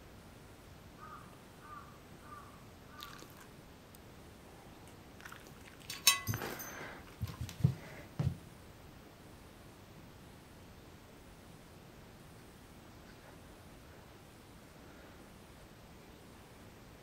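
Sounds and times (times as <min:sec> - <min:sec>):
clink on glass: 0:05.8 - 0:07.0.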